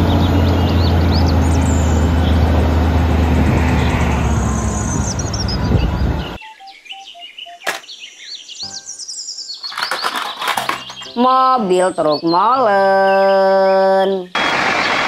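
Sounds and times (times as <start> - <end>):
diesel engine running: 0.0 - 6.4
birds chirping: 0.0 - 15.0.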